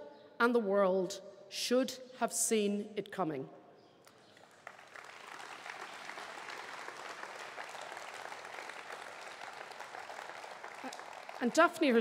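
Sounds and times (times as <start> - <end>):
crowd applauding: 4.2 - 12.0.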